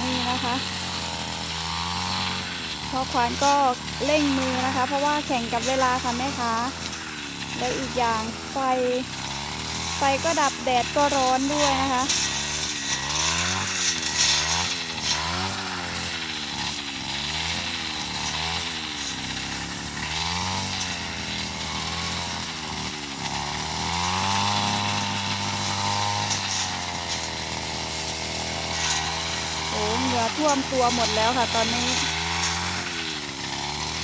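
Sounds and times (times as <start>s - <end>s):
brush cutter engine revving: 0.0s - 34.0s.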